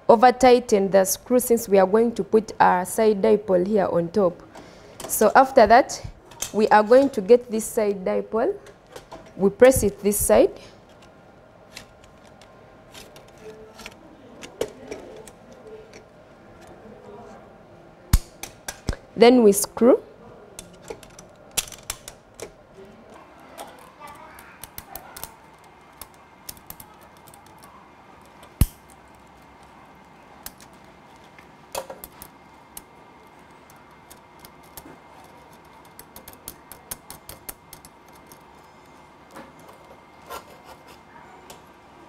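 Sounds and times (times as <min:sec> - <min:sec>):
metal parts clicking and scraping: 0:11.7 - 0:16.8, 0:20.6 - 0:22.6.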